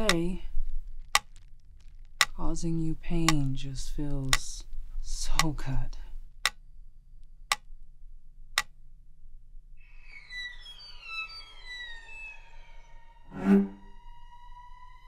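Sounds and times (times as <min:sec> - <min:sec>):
sharp ticks: 0:00.0 - 0:00.4, 0:01.0 - 0:02.4, 0:04.2 - 0:04.7, 0:05.3 - 0:05.6, 0:07.5 - 0:07.7, 0:08.6 - 0:08.8
music of sliding tones: 0:09.8 - 0:15.0.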